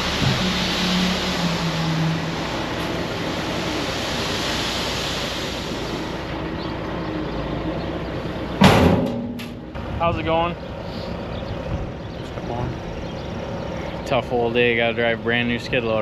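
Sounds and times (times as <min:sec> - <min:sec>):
gravel sliding out of truck: 0:00.0 - 0:06.7
truck engine running: 0:00.0 - 0:16.0.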